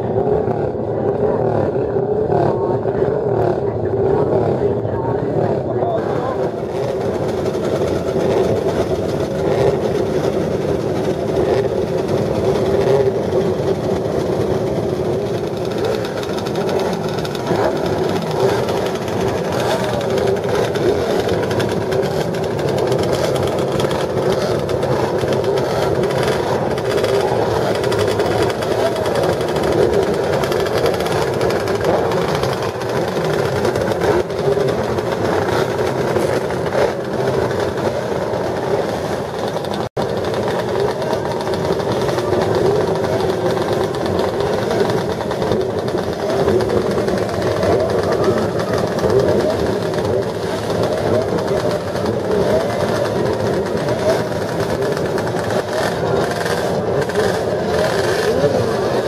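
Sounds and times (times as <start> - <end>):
racing motorcycle engines revving: 0.0 - 59.0.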